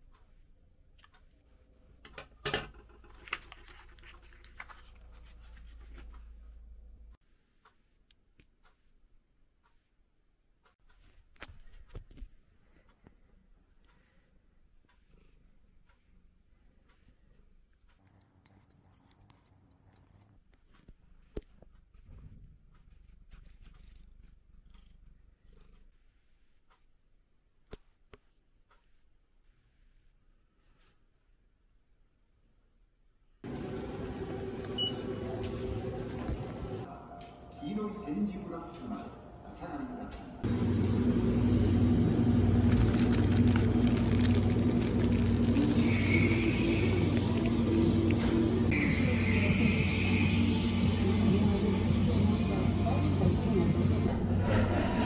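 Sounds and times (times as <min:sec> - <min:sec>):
paper tag rustling: 0:03.1 - 0:06.1, 0:42.6 - 0:48.5
cat purring: 0:13.2 - 0:26.6.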